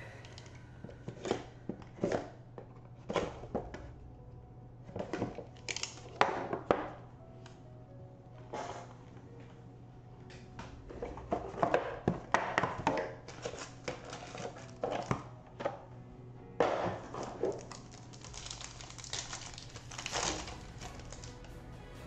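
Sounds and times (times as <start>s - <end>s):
faint background music: 0.0s - 22.0s
foil wrapper tearing and crinkling: 5.5s - 6.2s, 13.2s - 15.1s, 17.2s - 21.5s.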